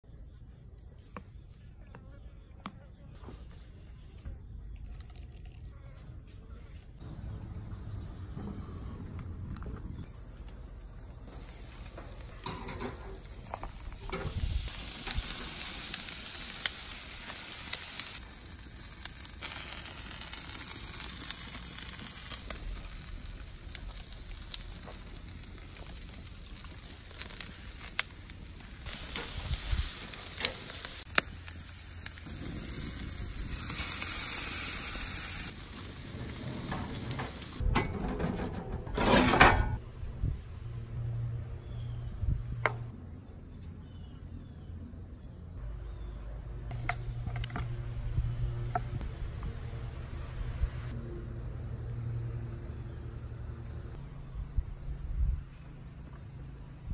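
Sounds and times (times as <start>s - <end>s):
charcoal fire crackling: 6.8s - 39.8s, 46.7s - 49.8s
meat sizzling on a grill: 10.1s - 37.6s.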